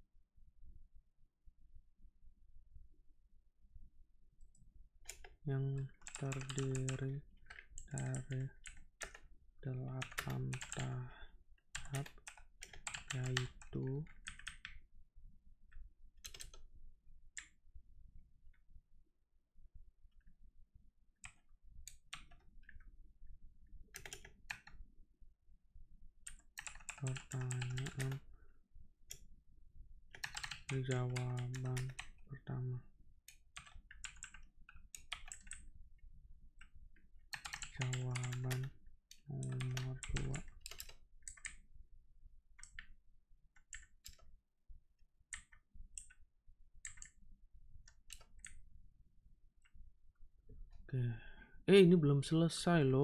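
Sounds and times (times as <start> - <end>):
computer keyboard key clicks: 16.2 - 16.6, 26.3 - 28.2, 30.1 - 32.1, 35.0 - 35.6, 37.3 - 38.7, 39.4 - 41.6, 46.8 - 47.2.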